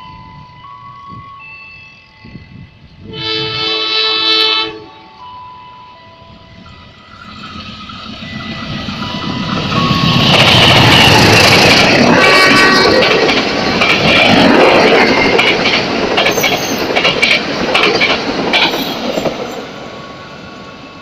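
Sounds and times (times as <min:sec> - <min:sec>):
passenger train passing: 0:00.0 - 0:21.0
loud train horn: 0:03.0 - 0:05.2, 0:10.1 - 0:13.2
wheel and rail noise: 0:04.5 - 0:21.0.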